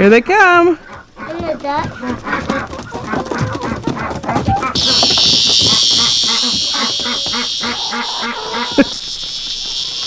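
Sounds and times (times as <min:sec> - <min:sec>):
duck quacking: 0:00.9 - 0:09.1
high insect drone: 0:04.7 - 0:10.0.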